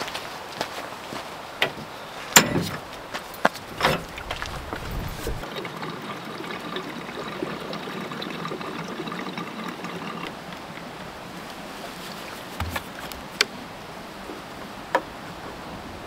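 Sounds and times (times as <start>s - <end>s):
fuel pouring into tank: 4.1s - 10.8s.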